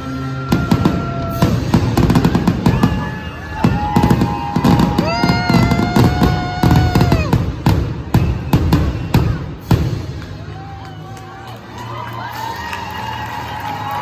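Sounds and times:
fireworks bangs and crackles: 0.0s - 10.8s.

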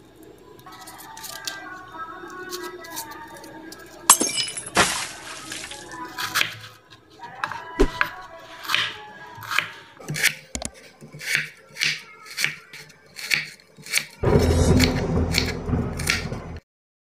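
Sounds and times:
knife chopping on wooden board: 7.8s - 12.5s, 13.3s - 16.3s.

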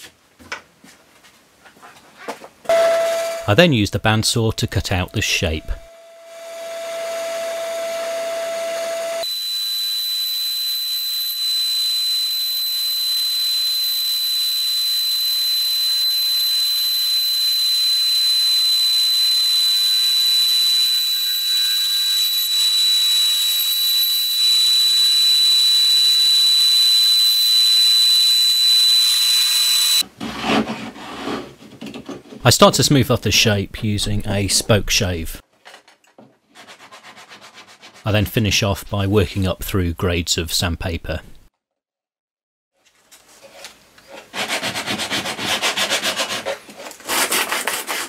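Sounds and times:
bandsaw cutting wood: 44.3s - 48.0s.

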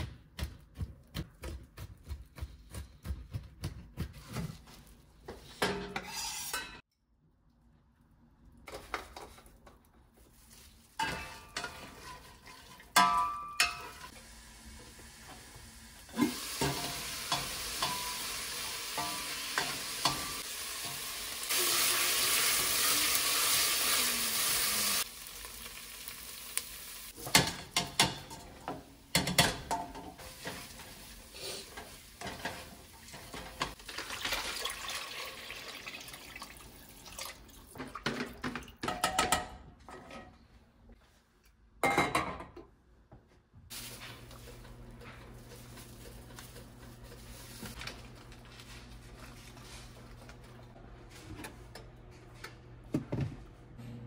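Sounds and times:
food sizzling in a pan: 13.8s - 27.4s, 29.9s - 37.0s, 43.7s - 47.8s.

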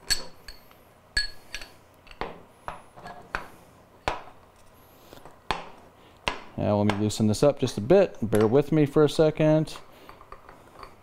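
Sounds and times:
metal clinks and knocks on wood: 0.0s - 2.4s.

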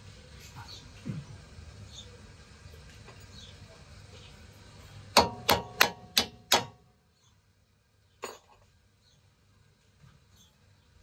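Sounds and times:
hammer striking a steel bolt: 5.2s - 6.9s.

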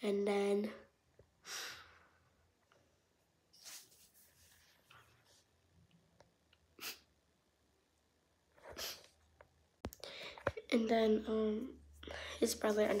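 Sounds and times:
girl breathing and sniffling: 1.4s - 2.2s, 6.8s - 7.1s, 8.6s - 9.2s, 10.0s - 10.6s, 12.0s - 12.6s.

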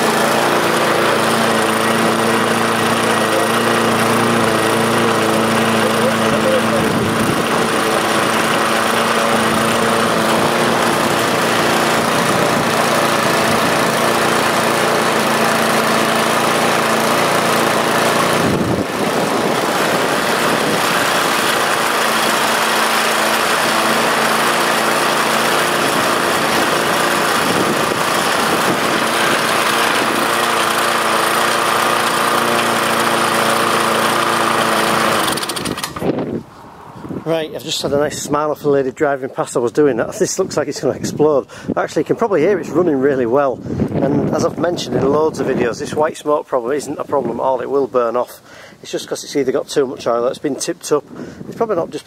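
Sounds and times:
lawn mower engine running: 0.0s - 36.5s.

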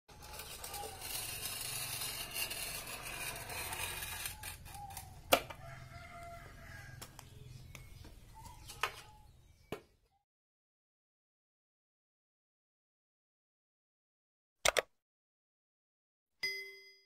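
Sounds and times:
glass cutter scraping tile: 0.1s - 5.6s
rooster crowing: 5.6s - 7.2s.

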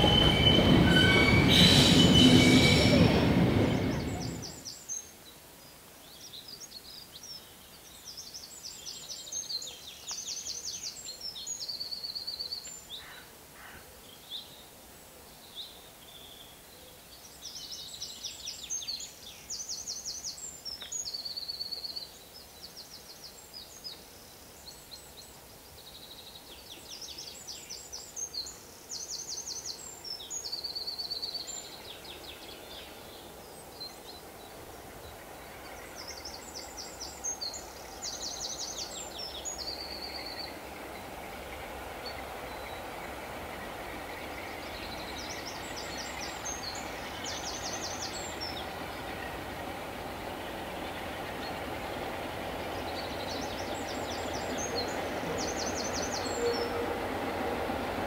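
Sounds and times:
distant locomotive hum: 0.0s - 4.7s, 31.5s - 58.0s.

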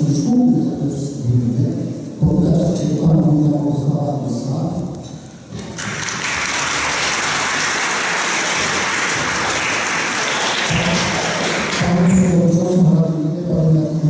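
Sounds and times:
audience applauding: 5.7s - 12.1s.

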